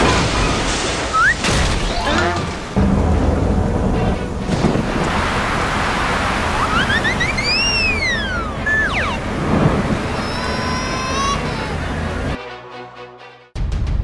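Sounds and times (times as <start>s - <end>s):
steady rumbling noise: 2.4s - 12.4s
short falling tones: 6.4s - 12.3s
rising and falling whistle: 6.6s - 9.2s
cartoon music: 6.6s - 9.3s, 10.0s - 12.4s.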